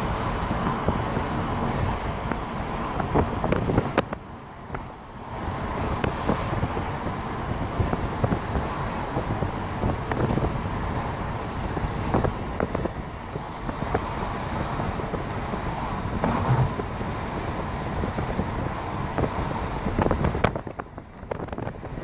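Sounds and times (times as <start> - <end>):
vehicle road rumble: 0.0 - 22.0
wind buffeting microphone: 0.0 - 22.0.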